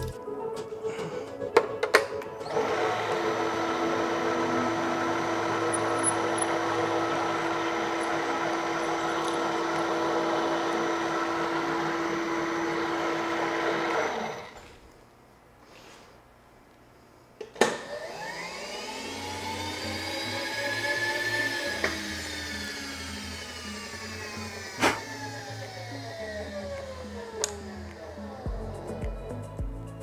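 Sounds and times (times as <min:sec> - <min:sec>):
milling machine motor humming: 0:02.5 - 0:14.6, 0:17.9 - 0:28.9.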